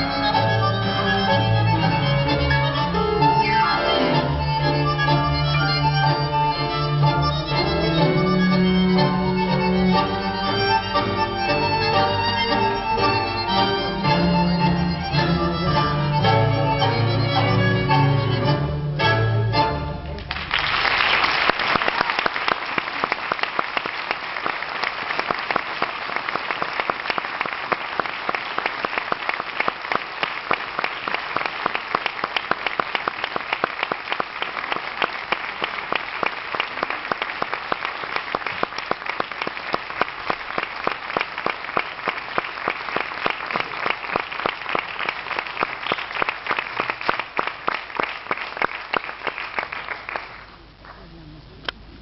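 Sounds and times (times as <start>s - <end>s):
audience applauding: 20.1s - 51.1s.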